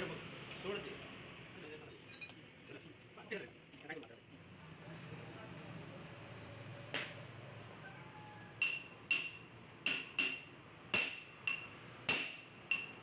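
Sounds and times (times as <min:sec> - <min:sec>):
hammer striking steel frame: 0:08.6 - 0:13.0.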